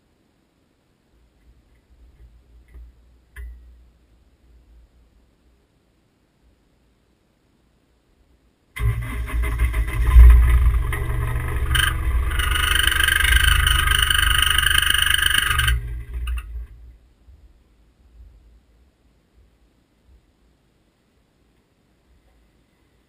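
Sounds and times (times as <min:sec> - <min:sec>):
vehicle engine rumble: 0:08.8 - 0:17.2.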